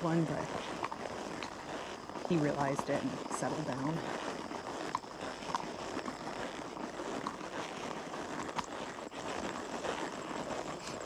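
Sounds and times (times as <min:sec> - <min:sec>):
horse walking rustling: 0:00.0 - 0:11.0.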